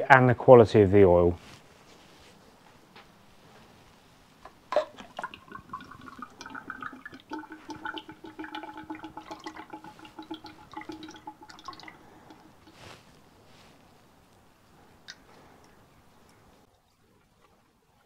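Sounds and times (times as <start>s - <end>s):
oil pouring into a jug: 4.8s - 12.8s.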